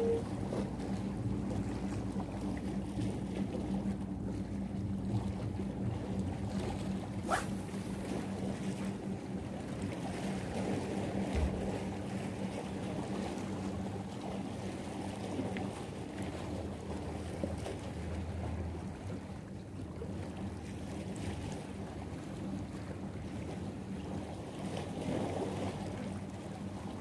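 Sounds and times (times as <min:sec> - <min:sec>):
sea waves: 0:00.0 - 0:12.4
low motor hum: 0:00.0 - 0:27.0
wind: 0:00.0 - 0:27.0
fishing rod cast swish: 0:07.2 - 0:08.0.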